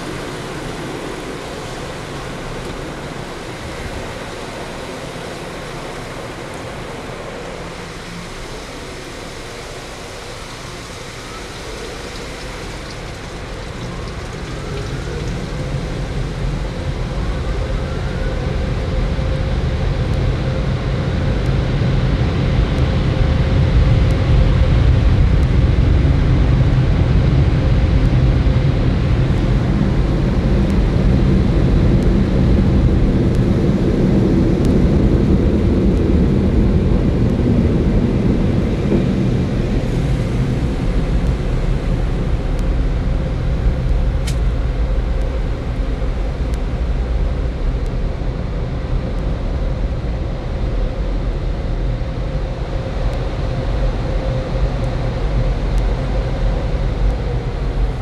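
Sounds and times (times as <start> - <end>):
car wash air dryers blowing: 0.0 - 17.8.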